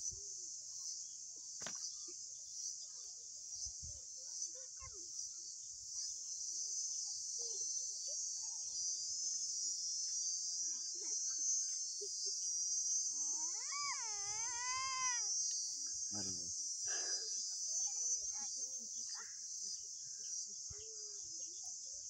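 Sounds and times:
insects chorus: 0.0s - 22.0s
wavering drawn-out call: 13.1s - 15.4s.

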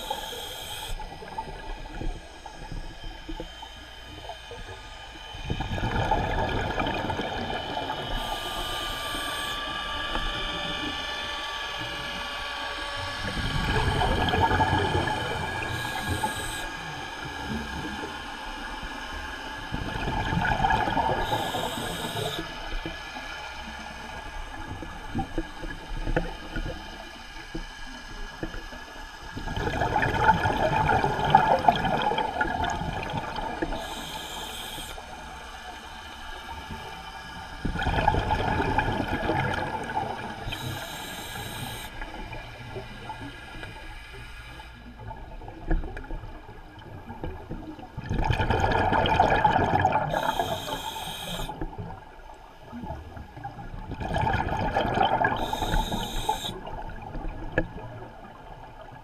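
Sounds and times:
regulator hiss: 0.0s - 1.3s, 8.0s - 9.7s, 15.1s - 17.6s, 21.2s - 22.7s, 33.7s - 37.5s, 40.4s - 44.9s, 50.1s - 51.6s, 55.4s - 56.7s
exhaled bubbles underwater: 5.4s - 11.0s, 13.2s - 18.3s, 19.6s - 27.2s, 29.3s - 35.8s, 37.6s - 43.8s, 44.9s - 59.0s.

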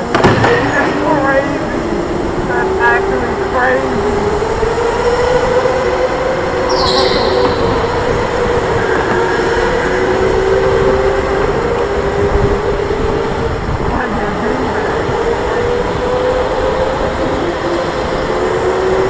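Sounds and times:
high squeal falling in pitch: 6.6s - 9.3s.

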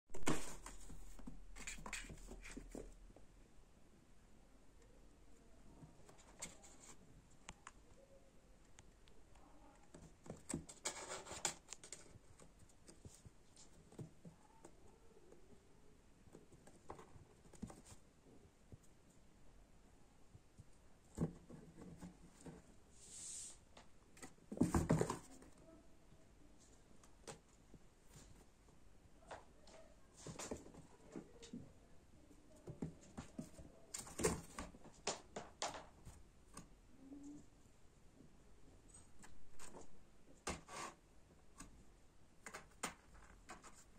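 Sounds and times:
kitten claws scratching cardboard: 10.3s - 13.0s.

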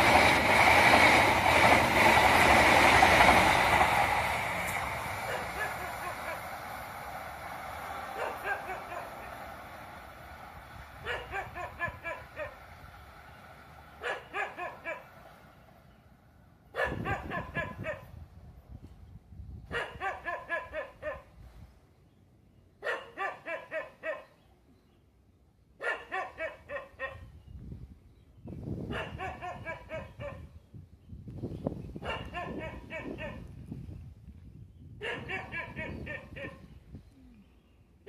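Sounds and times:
dog barking rapidly: 5.3s - 6.4s, 8.2s - 9.3s, 11.0s - 12.6s, 14.0s - 15.1s, 16.8s - 18.1s, 19.7s - 21.3s, 22.8s - 24.3s, 25.8s - 27.3s, 28.9s - 30.5s, 32.0s - 33.4s, 35.0s - 36.6s.

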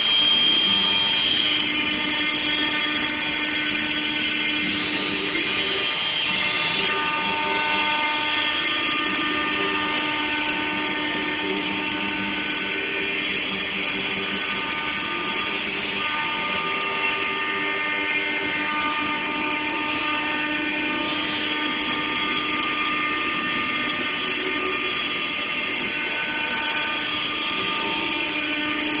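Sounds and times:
cnc router whining: 0.0s - 29.0s
low hum: 0.0s - 29.0s.

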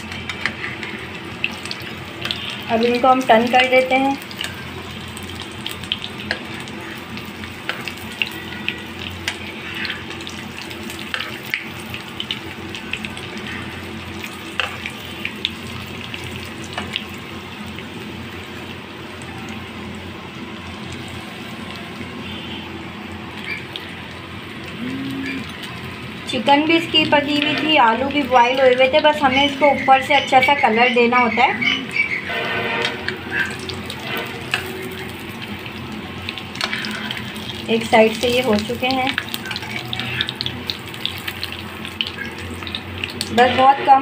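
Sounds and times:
metal tongs in pan: 0.0s - 4.6s, 32.8s - 35.1s, 36.5s - 43.8s
food sizzling in oil: 0.0s - 44.0s.

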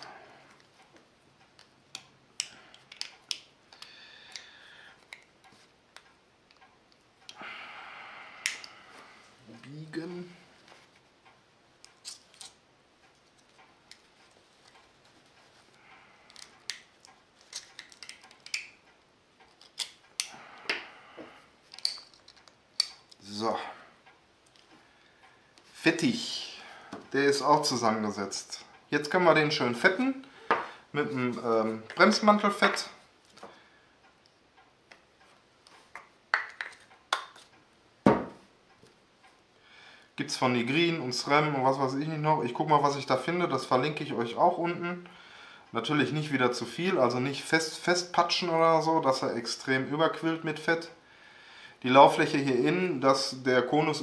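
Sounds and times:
metallic clicks and ticks: 11.2s - 20.4s.

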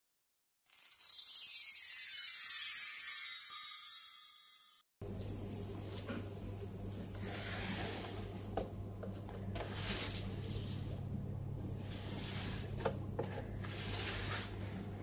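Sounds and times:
sparkling chime jingle: 0.6s - 4.9s.

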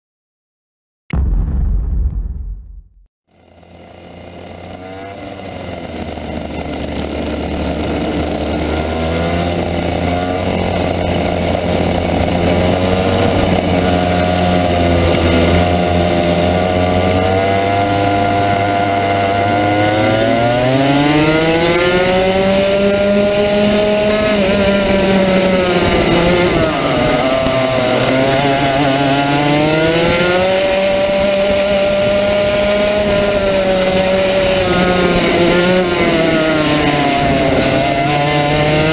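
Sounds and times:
kart engine running: 3.3s - 38.9s.

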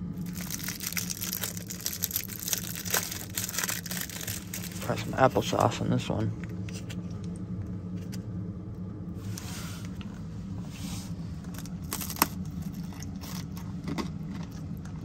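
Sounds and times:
crunchy cracker bites: 0.0s - 5.1s, 11.5s - 15.0s
steady low hum: 0.0s - 15.0s
pouch being squeezed: 0.2s - 5.0s, 11.5s - 13.4s.

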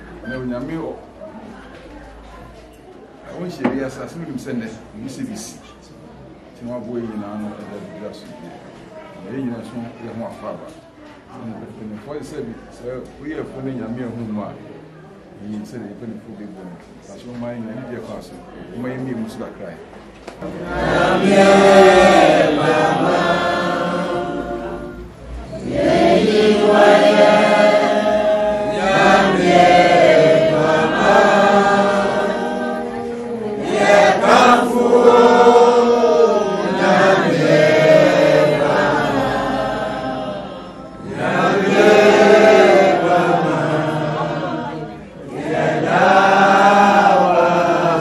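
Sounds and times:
group of voices chanting: 20.5s - 48.0s.

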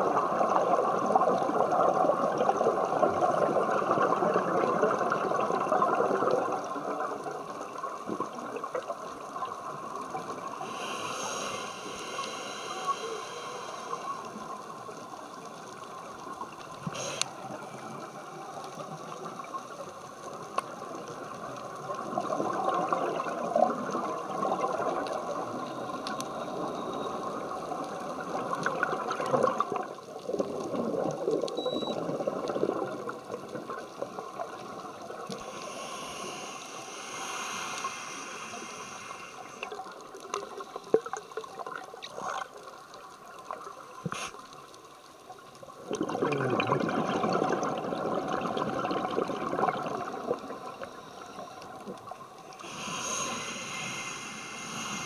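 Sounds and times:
gurgling exhaled bubbles: 0.0s - 14.9s, 20.8s - 26.0s, 26.6s - 42.6s, 45.7s - 50.9s
steady water hiss: 0.0s - 55.0s.

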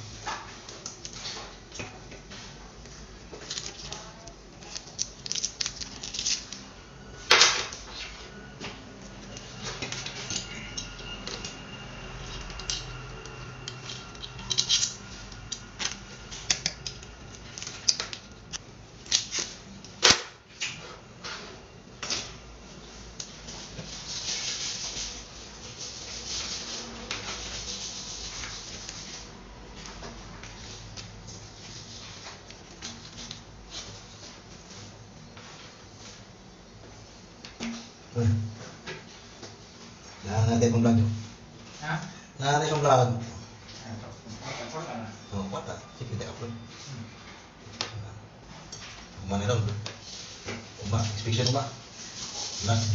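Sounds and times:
cable rustling and hands rubbing: 0.0s - 6.7s, 20.7s - 37.6s, 47.7s - 52.9s.

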